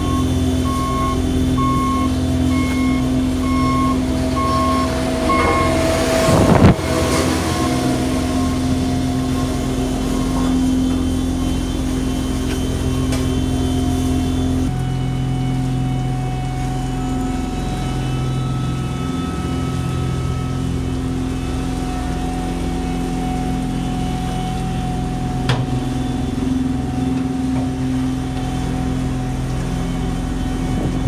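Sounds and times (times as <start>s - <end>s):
diesel machinery running: 0.0s - 31.0s
reversing alarm beeping: 0.0s - 31.0s
loud whoosh: 4.6s - 10.2s.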